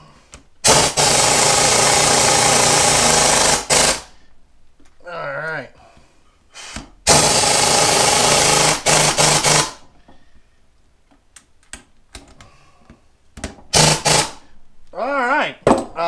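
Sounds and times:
impact wrench running: 0.6s - 4.2s, 7.1s - 9.8s, 13.7s - 14.4s.

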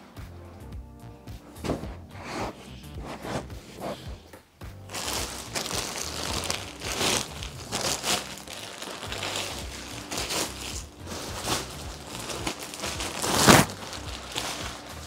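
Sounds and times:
plastic wrapping crinkling: 4.9s - 15.0s.

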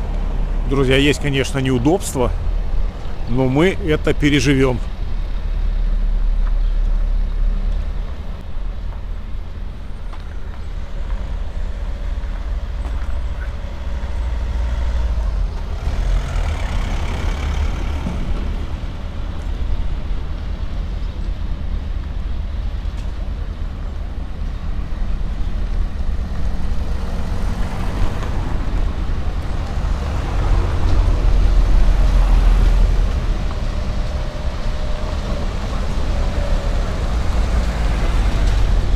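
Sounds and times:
traffic rumble: 0.0s - 38.9s
cars passing close by: 10.6s - 21.0s, 24.6s - 38.9s.

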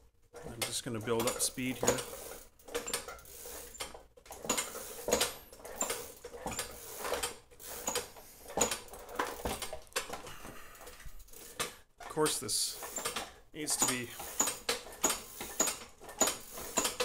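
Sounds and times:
bicycle chain rattling: 0.3s - 11.8s.

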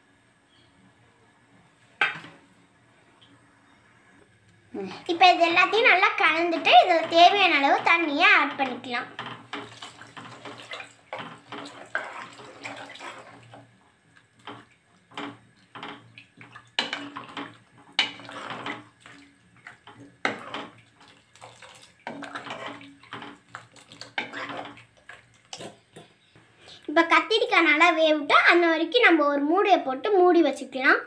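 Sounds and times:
ladle stirring liquid sloshing: 4.9s - 26.3s
ladle scraping metal pot: 6.5s - 13.7s, 14.4s - 26.2s
water pouring into pot: 9.0s - 25.8s.

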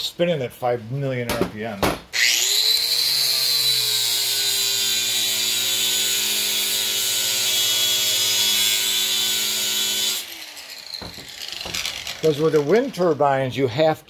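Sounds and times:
angle grinder grinding steel: 2.2s - 13.3s.

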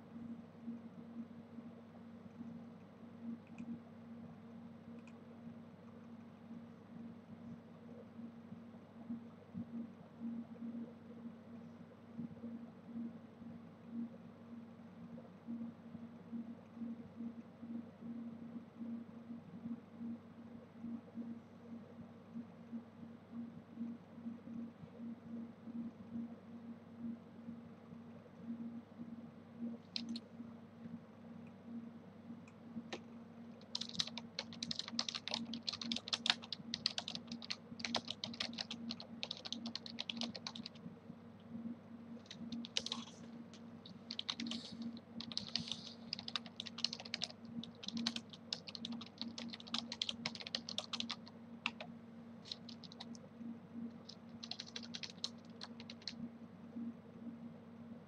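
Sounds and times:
faint low hum: 0.0s - 58.0s
typing on a computer keyboard: 29.9s - 30.2s, 33.6s - 40.8s, 42.2s - 43.2s, 43.9s - 51.9s, 52.5s - 53.2s, 53.9s - 56.2s.

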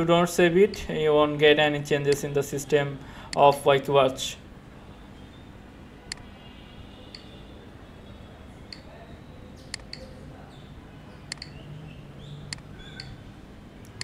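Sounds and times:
computer mouse clicking: 9.6s - 10.1s, 11.3s - 11.6s, 12.5s - 13.2s.

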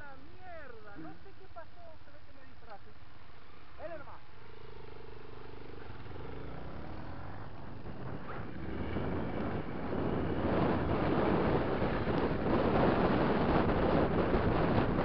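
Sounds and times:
motorcycle engine running: 0.0s - 15.0s
wind noise on microphone: 7.7s - 15.0s.

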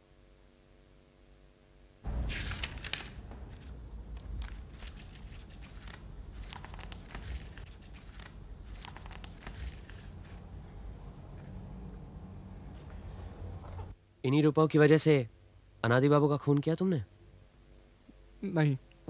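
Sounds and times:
low steady hum: 0.0s - 19.0s
book pages rustling: 2.1s - 10.7s.

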